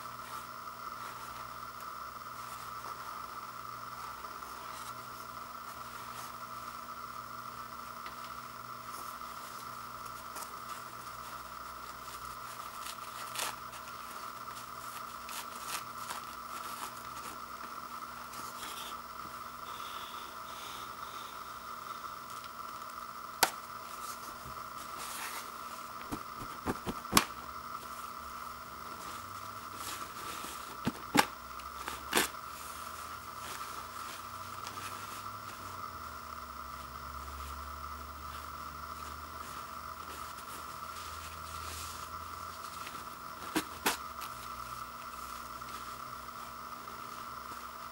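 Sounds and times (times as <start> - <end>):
faint steady hum: 0.0 - 47.9
toilet paper rustling and tearing: 10.2 - 17.4.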